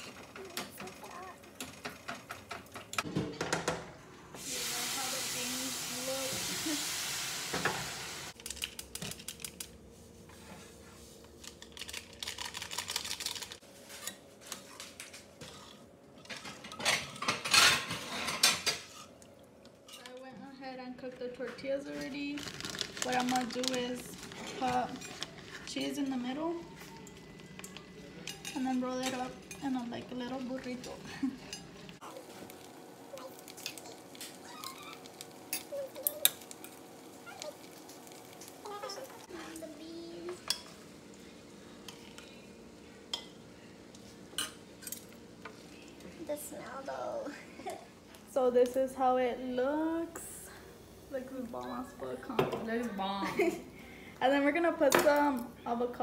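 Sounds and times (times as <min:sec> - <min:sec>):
light sizzle from pan: 0:04.3 - 0:08.7, 0:28.5 - 0:46.1.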